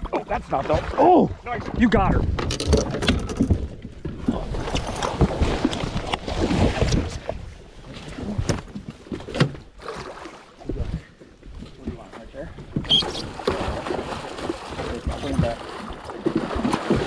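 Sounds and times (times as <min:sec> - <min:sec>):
water splashing and churning: 0:00.0 - 0:17.0.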